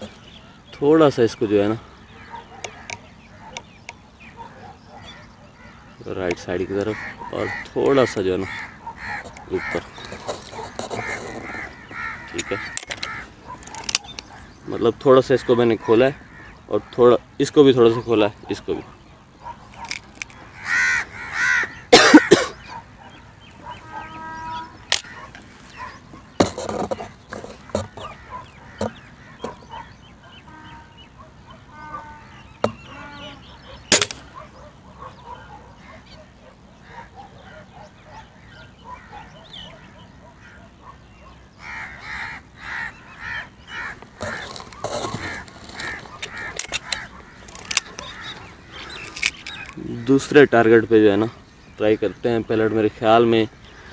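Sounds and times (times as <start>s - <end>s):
birds calling: 0.0s - 53.9s
rifle barrel broken open: 33.9s - 34.2s.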